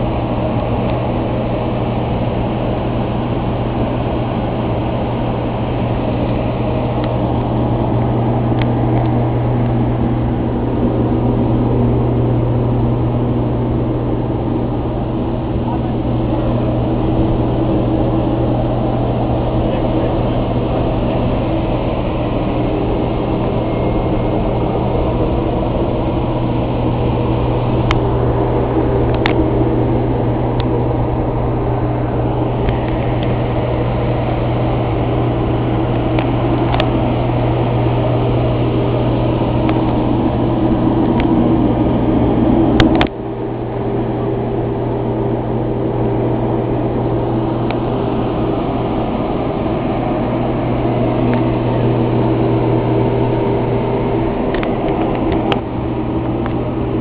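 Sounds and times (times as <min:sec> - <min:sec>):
auxiliary power unit drone: 0:00.0 - 0:57.0.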